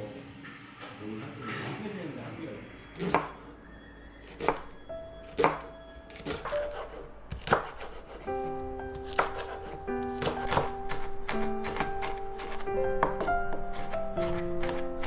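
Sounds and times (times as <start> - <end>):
soft background music: 2.4 - 15.0
knife chopping on wooden board: 3.0 - 3.5, 5.3 - 8.3, 8.9 - 15.0.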